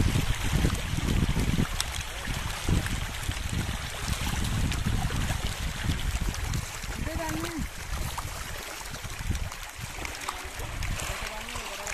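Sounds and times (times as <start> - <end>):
fish splashing at water surface: 0.0 - 11.9
rushing water: 0.0 - 11.9
wind gusts on microphone: 0.0 - 11.9.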